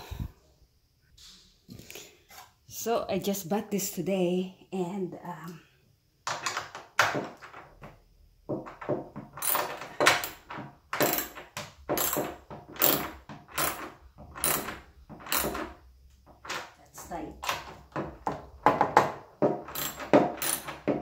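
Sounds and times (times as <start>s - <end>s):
ratchet wrench clicking: 19.7s - 20.8s.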